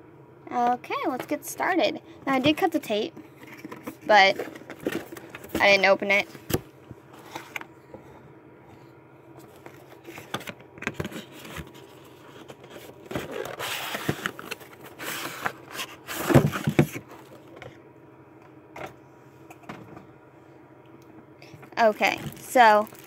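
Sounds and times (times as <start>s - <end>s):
packaging knocks and rustling: 22.1s - 23.0s.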